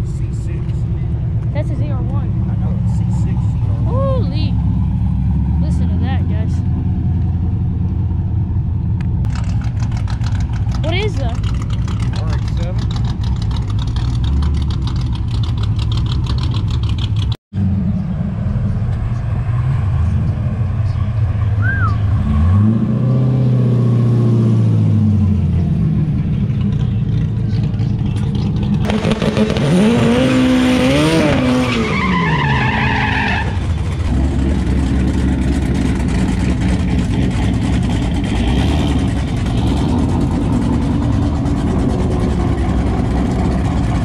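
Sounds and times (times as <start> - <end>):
car engine revving: 0.0 - 44.0
engine rumble of waiting cars: 0.0 - 44.0
tyre squeal: 21.0 - 22.4, 31.2 - 33.8.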